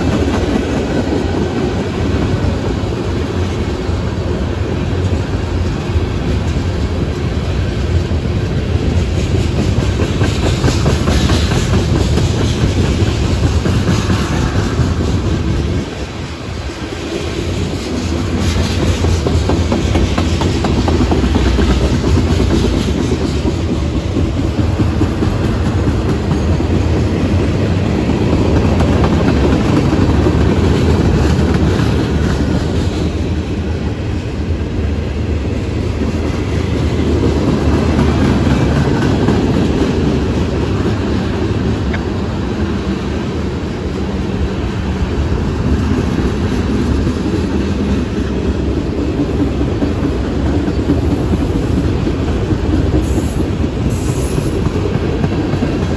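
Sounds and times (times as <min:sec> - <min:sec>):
wheels clacking on rail joints: 0:00.0 - 0:43.3
freight train rumbling past: 0:00.0 - 0:55.9.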